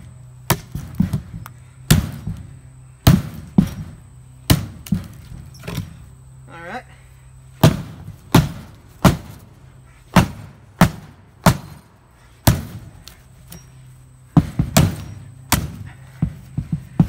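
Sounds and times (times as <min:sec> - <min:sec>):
hatchet chopping into plywood: 0:12.4 - 0:12.8, 0:14.4 - 0:15.9.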